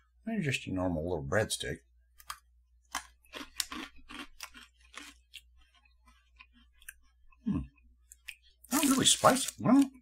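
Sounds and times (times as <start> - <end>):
mouth chewing crunchy pretzel stick: 2.2 - 10.0.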